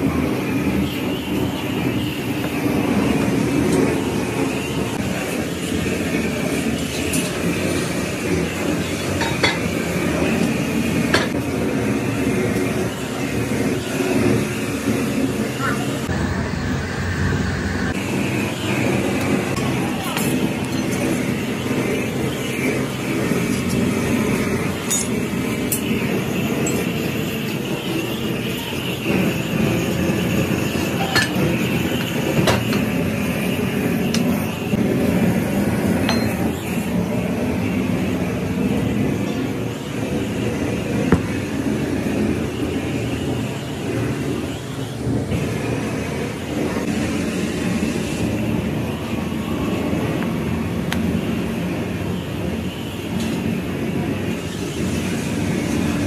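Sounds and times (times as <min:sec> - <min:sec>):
foundry machinery rumble: 0:00.0 - 0:56.0
hand tools clinking on metal: 0:24.9 - 0:25.9.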